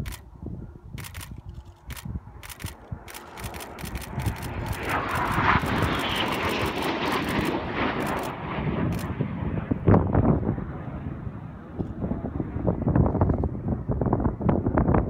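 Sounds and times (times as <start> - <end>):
camera shutter clicks: 0.0 - 0.2, 1.0 - 8.3
jet passing low with roar: 0.0 - 15.0.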